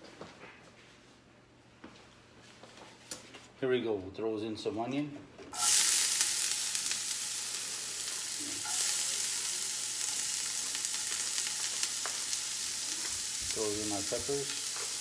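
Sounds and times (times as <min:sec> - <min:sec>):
onion sizzling in grease: 0:05.6 - 0:15.0.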